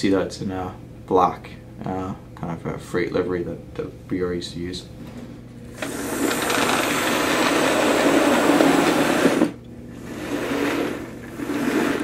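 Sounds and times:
small motor whirring: 0:05.7 - 0:12.0
model train wheels rattling: 0:05.8 - 0:09.6.

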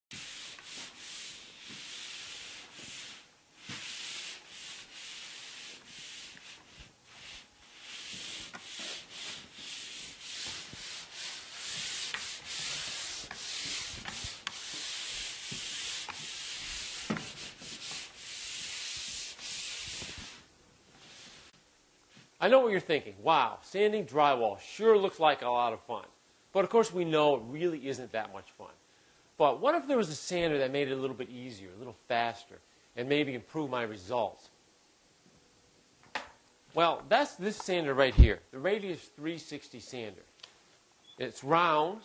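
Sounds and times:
drywall sanding by hand: 0:00.1 - 0:20.5.

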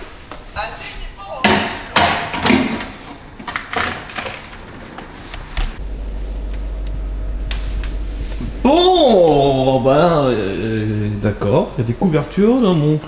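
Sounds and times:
rustling: 0:02.6 - 0:06.8
steady low hum: 0:04.4 - 0:13.0.

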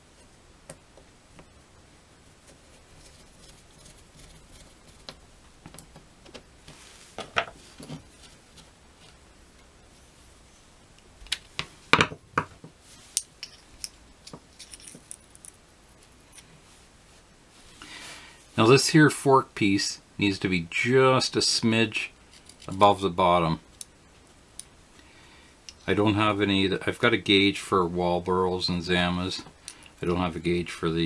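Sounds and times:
small metal parts clicking: 0:13.2 - 0:15.6.

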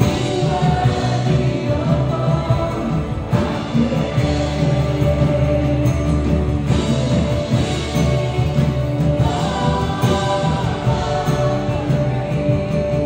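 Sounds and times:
acoustic guitar: 0:00.0 - 0:13.0
keyboard playing: 0:00.0 - 0:13.0
woman singing: 0:00.0 - 0:13.0.

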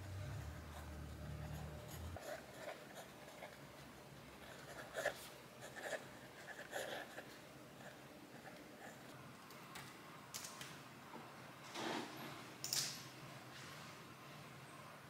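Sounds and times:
pen scratching on paper: 0:00.3 - 0:03.6, 0:04.4 - 0:09.0.

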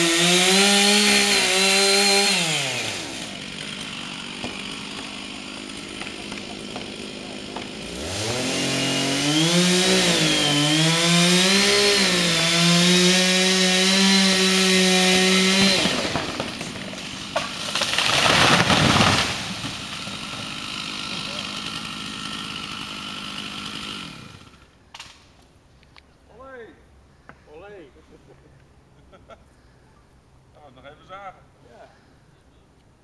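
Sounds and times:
chainsaw revving: 0:00.0 - 0:24.7.

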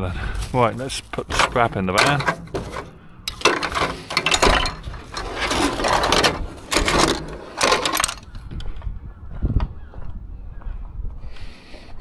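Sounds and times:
scrap metal clinking and rattling: 0:00.4 - 0:08.4.

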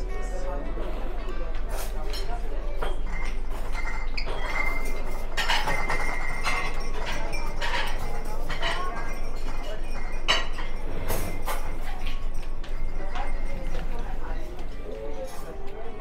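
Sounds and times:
background hubbub: 0:00.0 - 0:16.0
dishes and cutlery clinking: 0:00.0 - 0:16.0.

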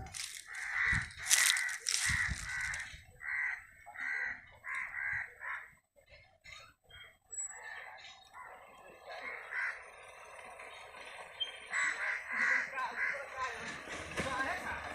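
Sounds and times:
bird giving harsh calls: 0:00.0 - 0:05.8, 0:11.4 - 0:13.3.

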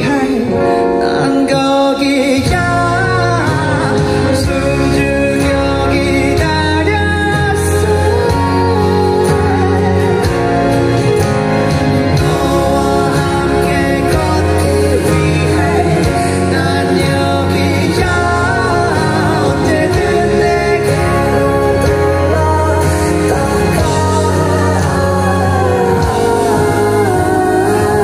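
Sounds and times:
man singing into microphone: 0:00.0 - 0:11.4, 0:12.0 - 0:28.0
live band music: 0:00.0 - 0:28.0
heavy bass line: 0:02.0 - 0:28.0.

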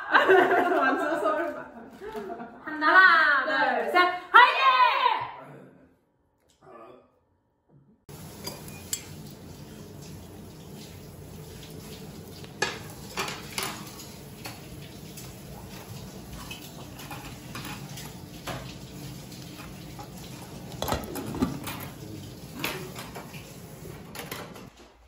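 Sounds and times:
utensils clinking against bowls: 0:08.1 - 0:10.2, 0:12.5 - 0:23.5.

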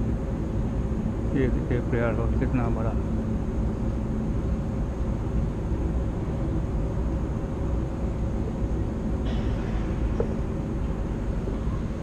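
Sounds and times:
faint constant hum: 0:00.0 - 0:12.0
low rumble: 0:09.2 - 0:12.0.

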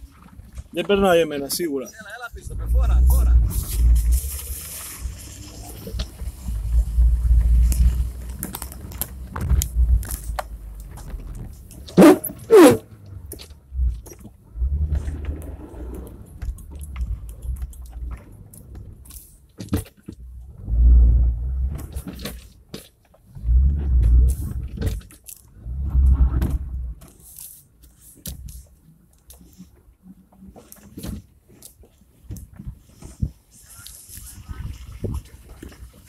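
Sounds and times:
knocks and creaks: 0:00.0 - 0:27.4.

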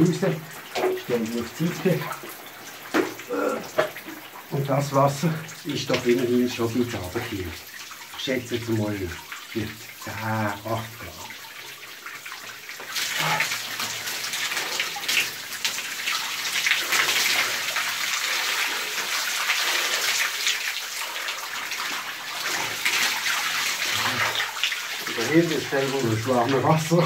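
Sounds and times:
water pouring and splashing: 0:00.0 - 0:27.0.

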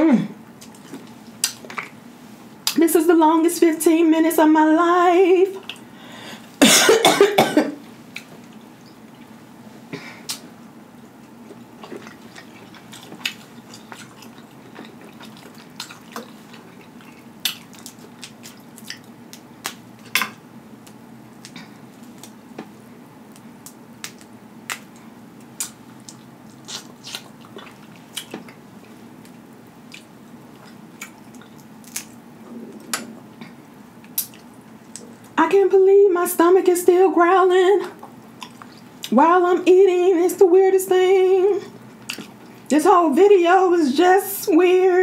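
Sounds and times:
wet chewing: 0:11.0 - 0:20.2, 0:23.3 - 0:35.3, 0:37.9 - 0:39.1.

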